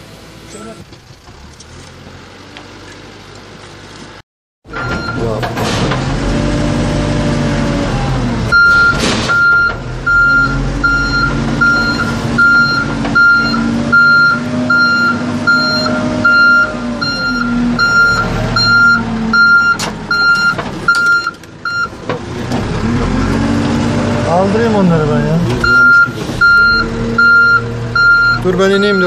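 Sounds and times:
reversing alarm beeping: 4.7s - 5.3s, 8.5s - 22.0s, 25.6s - 29.0s
diesel engine revving: 4.7s - 29.0s.

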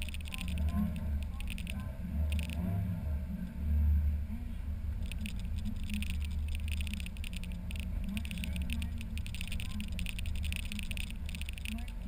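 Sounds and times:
rapid high-pitched ticking: 0.0s - 2.7s, 5.0s - 12.0s
car engine running: 0.0s - 12.0s
wind and road rumble: 0.0s - 12.0s.

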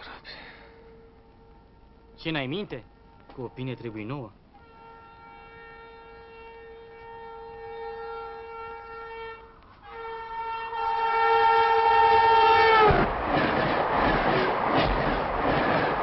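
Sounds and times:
vehicle horn blast: 4.6s - 13.1s
loud rushing rattling noise: 12.9s - 16.0s.

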